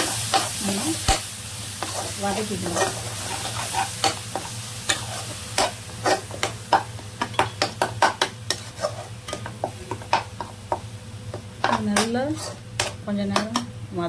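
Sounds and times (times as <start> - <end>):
frying sizzle: 0.0 - 14.0
spatula scraping a frying pan: 1.8 - 10.5, 11.6 - 13.0.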